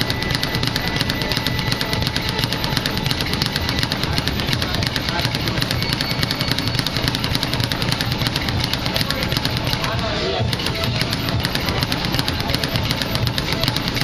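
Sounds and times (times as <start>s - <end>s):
speed bag rattling: 0.0s - 14.0s.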